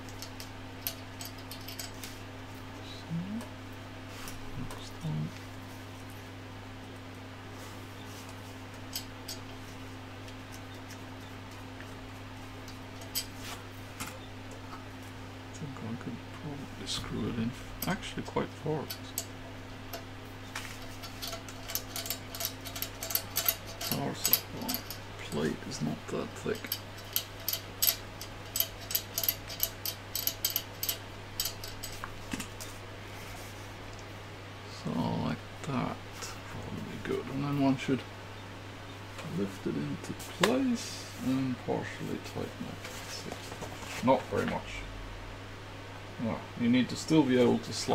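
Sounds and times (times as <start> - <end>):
steady low hum: 0.0 - 47.9
screwdriver and screws clicking: 20.8 - 25.0, 26.6 - 32.1.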